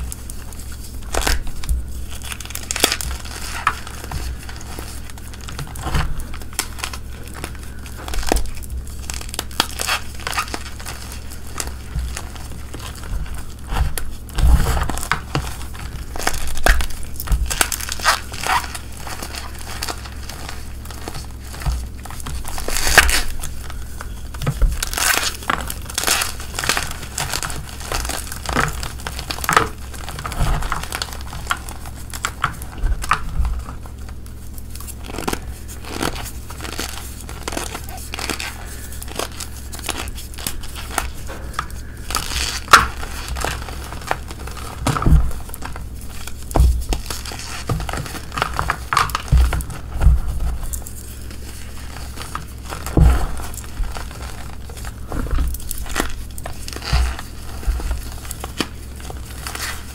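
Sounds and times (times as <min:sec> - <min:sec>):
chalk crunching and crumbling: 0:00.0 - 0:59.9.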